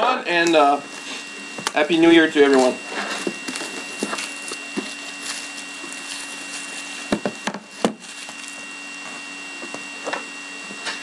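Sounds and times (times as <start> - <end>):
faint steady hum: 0.0 - 11.0
plastic wrap crinkling: 2.4 - 8.8.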